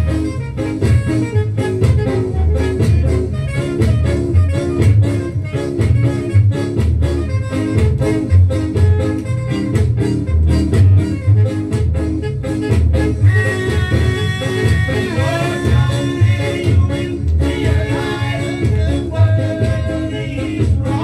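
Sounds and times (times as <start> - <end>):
ska record playing: 0.0 - 21.0
person singing: 13.2 - 21.0.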